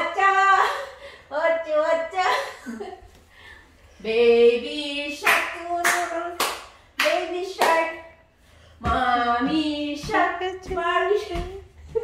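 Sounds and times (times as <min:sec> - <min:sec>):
hands clapping a beat: 0:05.2 - 0:07.9.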